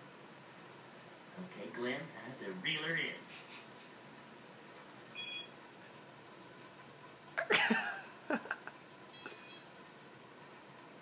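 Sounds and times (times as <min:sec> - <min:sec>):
phone electronic beep: 0:05.2 - 0:05.5, 0:09.1 - 0:09.7.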